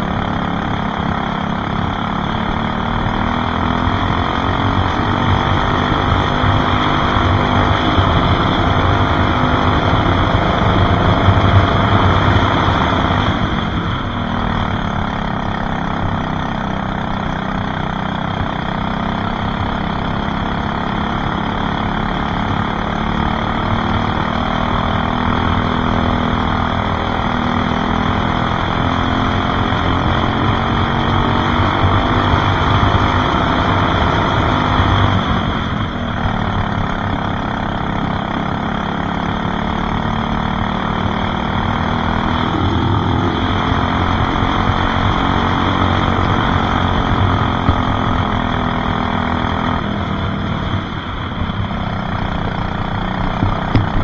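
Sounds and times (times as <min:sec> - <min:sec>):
racing kart engine: 0:00.0 - 0:54.0.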